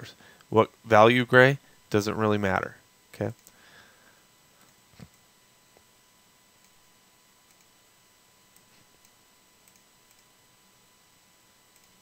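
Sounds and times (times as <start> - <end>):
faint computer mouse clicks: 7.5 - 7.7, 8.6 - 10.3, 11.7 - 12.0.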